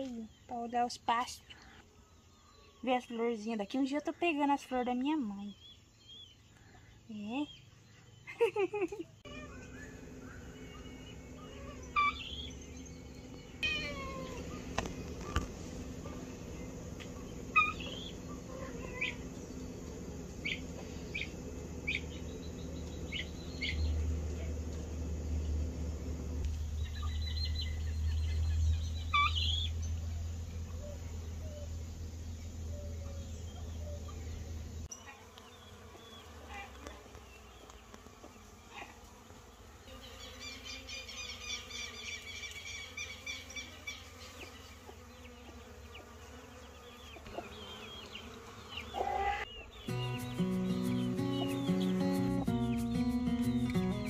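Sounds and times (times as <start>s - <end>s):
insects buzzing: 0.0s - 54.0s
bird chirps and calls: 9.2s - 15.4s, 17.1s - 19.7s, 20.4s - 24.1s, 26.6s - 30.0s, 46.8s - 54.0s.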